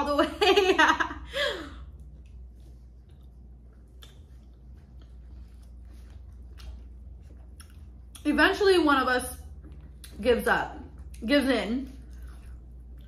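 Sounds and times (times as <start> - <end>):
wet chewing smacks: 2.0 - 8.4.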